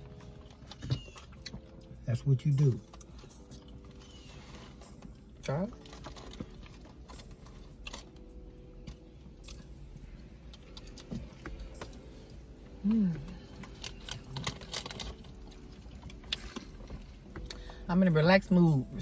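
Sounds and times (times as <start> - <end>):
chewing crunchy food: 0.0 - 17.7
person humming: 12.8 - 13.4.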